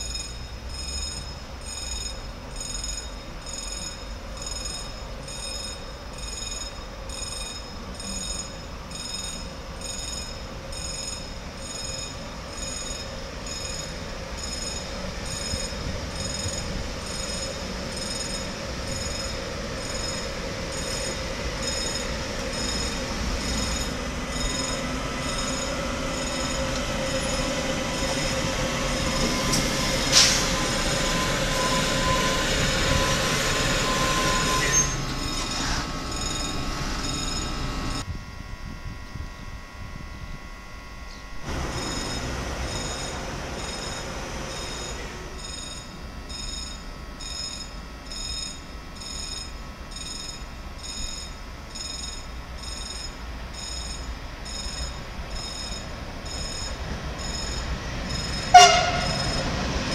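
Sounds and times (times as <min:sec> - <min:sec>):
freight train passing: 0:00.0 - 0:59.9
wheel and brake squealing: 0:10.9 - 0:38.0, 0:53.6 - 0:59.9.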